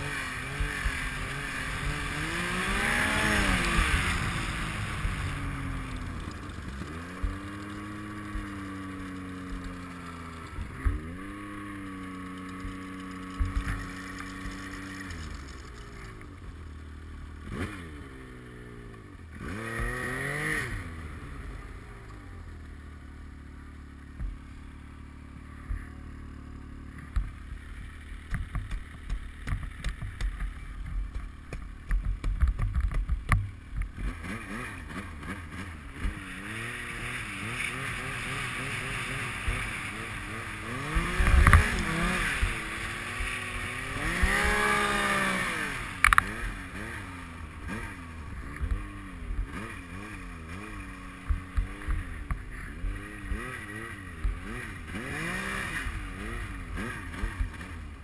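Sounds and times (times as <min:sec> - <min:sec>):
snowmobile engine revving: 0:00.0 - 0:22.4, 0:33.9 - 0:58.0.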